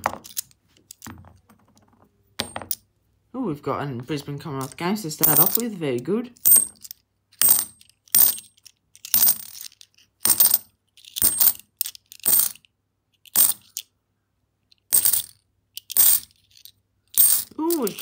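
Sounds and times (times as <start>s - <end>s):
coins clinking onto a pile: 4.6s - 5.7s, 6.5s - 11.6s, 12.2s - 12.6s, 13.4s - 13.8s, 14.9s - 16.4s, 17.2s - 18.0s.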